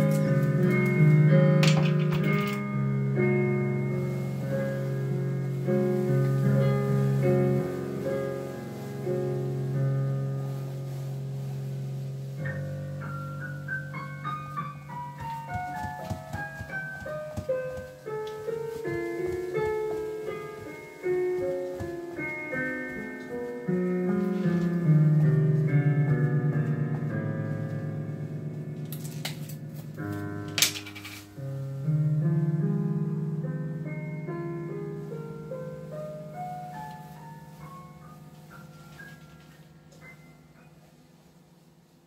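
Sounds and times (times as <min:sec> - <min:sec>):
solo piano music: 0:00.0 - 0:42.0.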